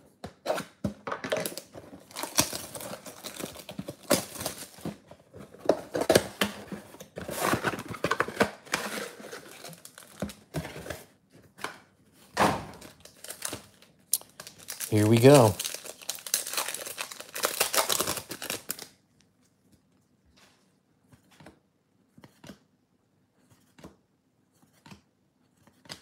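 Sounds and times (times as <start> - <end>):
shrink wrap crinkling and tearing: 1.3 - 5.0, 7.3 - 11.0, 12.8 - 19.0
cardboard box rustling: 1.9 - 11.2.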